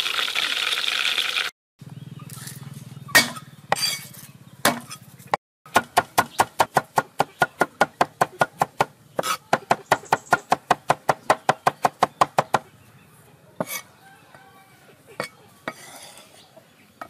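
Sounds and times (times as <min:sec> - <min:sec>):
cleaver chopping on wooden board: 0:04.6 - 0:04.9, 0:05.7 - 0:12.6.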